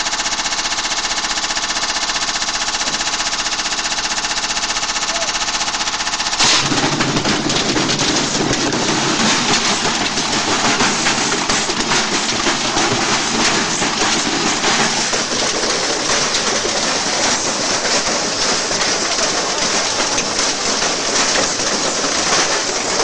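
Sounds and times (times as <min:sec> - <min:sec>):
washing machine drum clattering and banging: 0:06.4 - 0:23.0.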